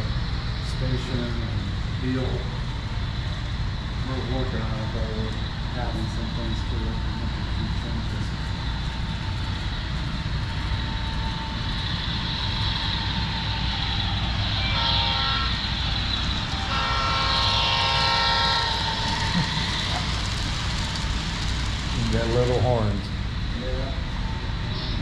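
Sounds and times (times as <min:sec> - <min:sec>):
model train running hum: 0:00.0 - 0:25.0
model train horn: 0:14.6 - 0:15.7, 0:16.6 - 0:19.6.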